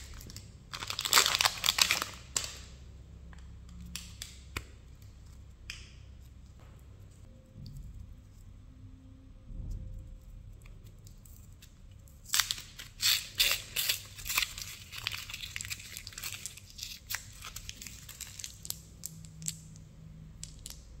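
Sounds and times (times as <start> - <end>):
wrapper tearing and crinkling: 0.0 - 2.7, 12.2 - 19.6.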